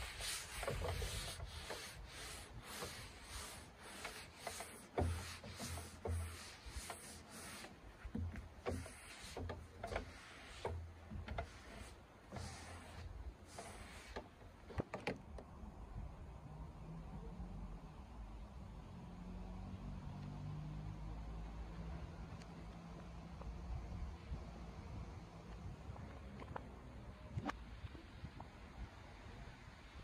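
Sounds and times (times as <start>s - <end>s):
sponge scrubbing wet wood: 0.0s - 14.4s.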